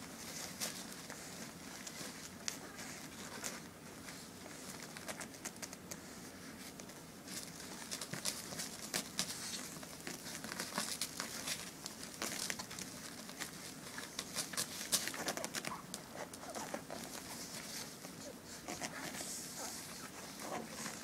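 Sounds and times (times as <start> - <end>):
training pads crinkling: 6.6 - 21.0.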